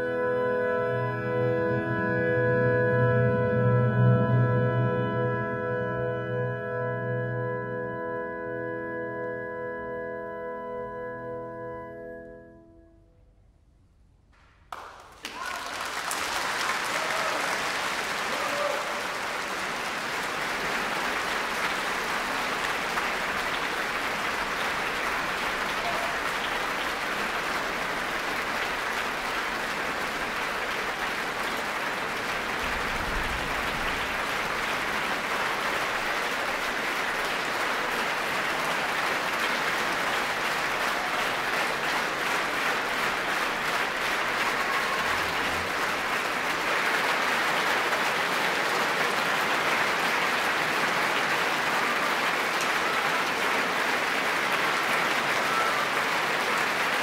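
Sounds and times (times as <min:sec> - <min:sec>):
audience applauding: 0:14.4 - 0:57.0.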